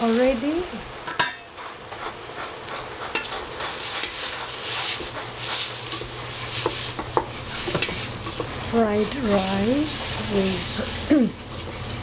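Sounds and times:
food sizzling in a pan: 0.0 - 12.0
utensil clicking against pan: 2.7 - 10.0.

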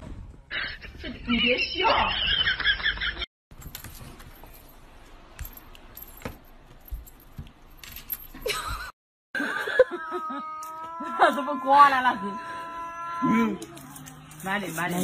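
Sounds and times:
jingling rattles: 13.6 - 15.0.

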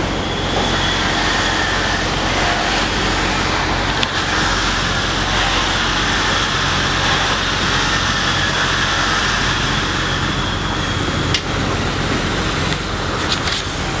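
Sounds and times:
road noise: 0.0 - 14.0
rushing wind: 0.0 - 14.0.

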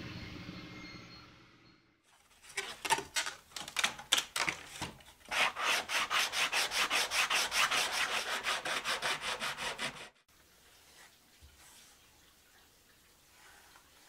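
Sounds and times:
plywood pieces scraping and knocking: 2.3 - 5.3
sanding block rasping on plywood: 5.3 - 10.2.

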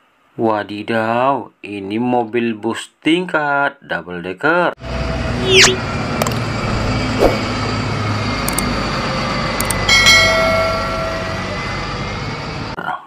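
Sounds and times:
bus engine humming: 4.8 - 12.8
road noise: 4.8 - 12.8.

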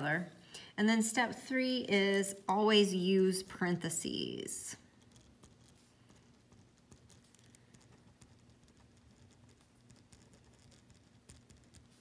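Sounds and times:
pen writing on paper: 5.0 - 12.0.

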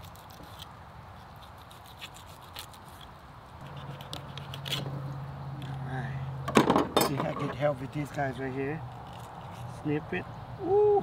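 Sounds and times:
blade scraping on bone and board: 0.0 - 5.8, 8.9 - 9.9.

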